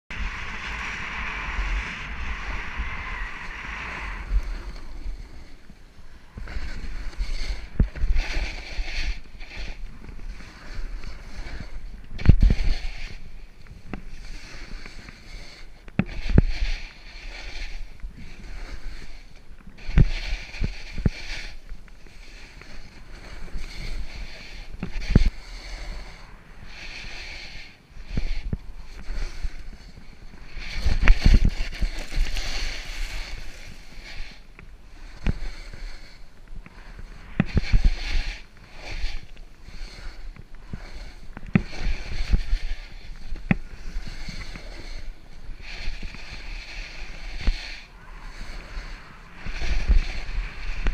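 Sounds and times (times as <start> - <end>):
snowboard scraping through snow: 0.1 - 50.9
wind buffeting microphone: 0.1 - 50.9.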